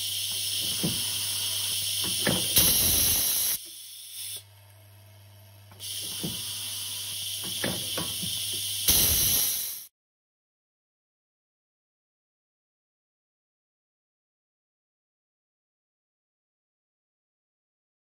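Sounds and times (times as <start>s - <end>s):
air blasts: 0.0s - 4.4s, 5.8s - 9.9s
compressed air hissing: 0.0s - 4.4s, 5.8s - 9.9s
vibratory bowl feeder humming: 0.0s - 8.9s.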